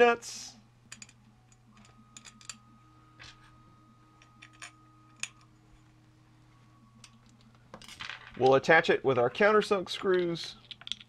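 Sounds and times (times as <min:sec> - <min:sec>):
small metallic clicks: 0:10.0 - 0:11.0.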